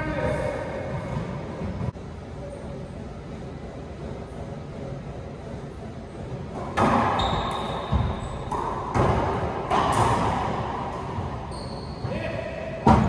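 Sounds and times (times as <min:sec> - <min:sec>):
ball smacking racquet and walls: 0:06.5 - 0:13.0
short high squeak: 0:07.2 - 0:08.5, 0:11.5 - 0:12.2.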